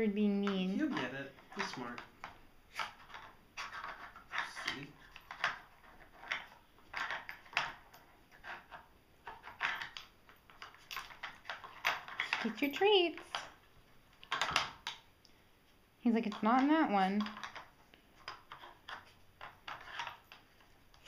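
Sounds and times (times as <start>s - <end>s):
plastic puzzle pieces clattering: 2.8s - 13.6s, 14.2s - 15.0s, 16.3s - 21.0s.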